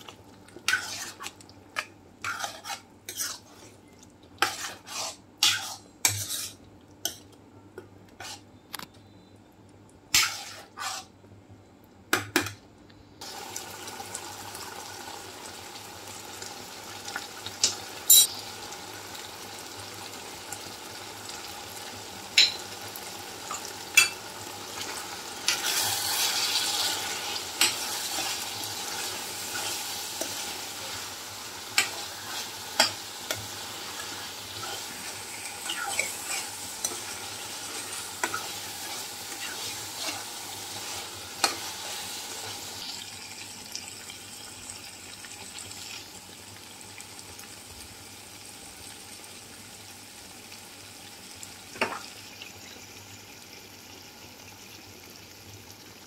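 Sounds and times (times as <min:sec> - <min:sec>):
metal spoon scraping a pan: 0:00.7 - 0:03.8, 0:04.4 - 0:07.2, 0:08.2 - 0:08.5, 0:10.2 - 0:11.1, 0:24.8 - 0:42.6
chicken sizzling in oil: 0:13.2 - 0:56.0.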